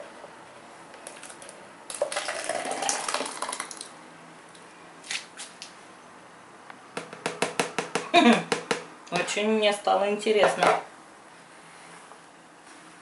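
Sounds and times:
thick liquid pouring into jug: 0:01.2 - 0:03.9.

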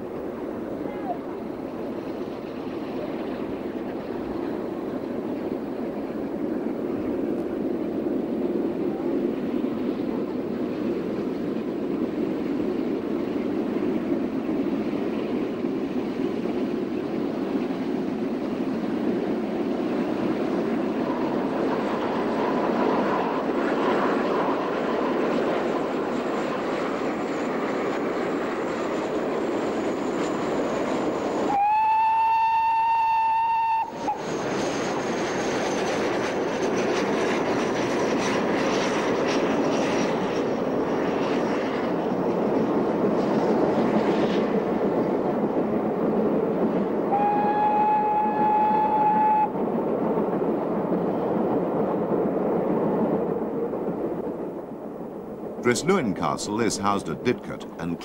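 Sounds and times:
steam locomotive rumbling: 0:00.0 - 0:58.0
steam whistle blasts: 0:31.5 - 0:34.1, 0:47.1 - 0:49.5.

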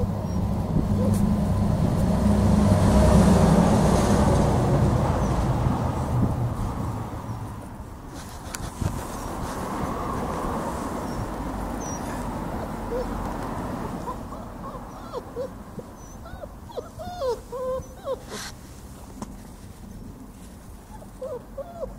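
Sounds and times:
puppies squeaking: 0:00.0 - 0:01.2, 0:11.0 - 0:13.2, 0:13.8 - 0:18.6, 0:20.9 - 0:21.9.

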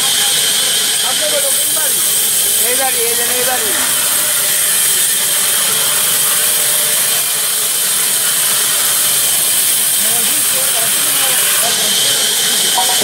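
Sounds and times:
band saw cutting wood: 0:00.0 - 0:13.0.

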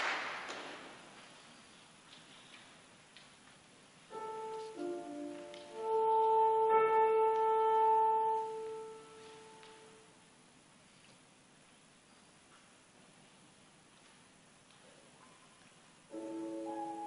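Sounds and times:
piano: 0:03.6 - 0:11.0, 0:14.8 - 0:17.0
alto saxophone: 0:04.1 - 0:10.1.

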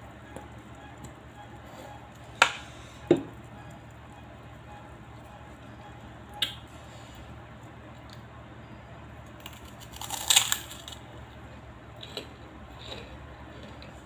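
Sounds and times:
steady low hum: 0:00.0 - 0:14.0
cracker crackling: 0:09.2 - 0:11.1.

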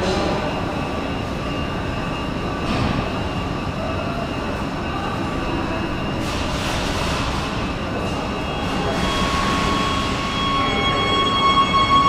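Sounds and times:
high-pitched whine: 0:00.0 - 0:12.0.

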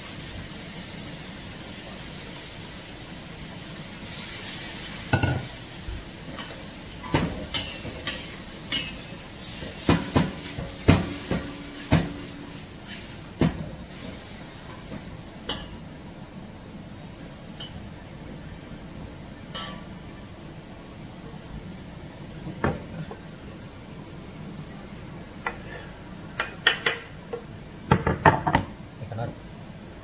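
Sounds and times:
steady hiss: 0:00.0 - 0:27.8
metal spatula clanking on wok: 0:19.5 - 0:19.9.

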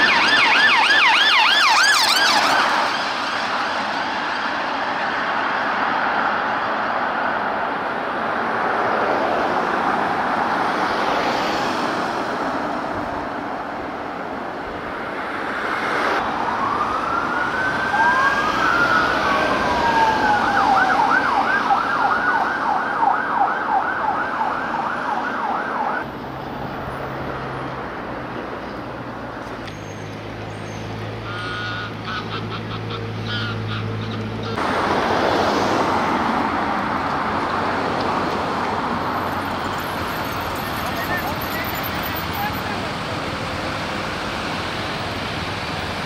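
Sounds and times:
police siren wailing and yelping: 0:00.0 - 0:03.3, 0:16.2 - 0:26.0, 0:39.1 - 0:43.0
road traffic: 0:00.0 - 0:46.0.

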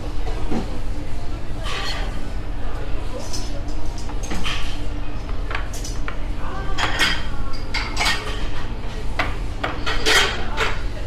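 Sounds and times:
dining room hum: 0:00.0 - 0:11.0
dishes and cutlery clinking: 0:01.6 - 0:02.2, 0:03.1 - 0:04.8, 0:05.5 - 0:10.9.

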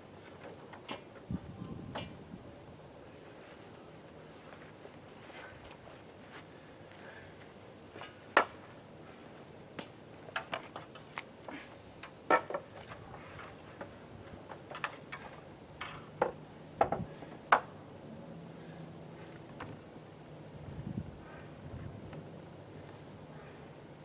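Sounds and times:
wooden knocks and clicks: 0:14.5 - 0:17.7.

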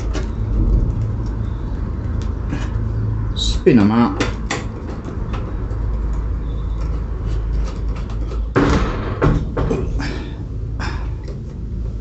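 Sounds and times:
steady low rumble: 0:00.0 - 0:06.4
metal knocks and clicks: 0:04.1 - 0:10.0.

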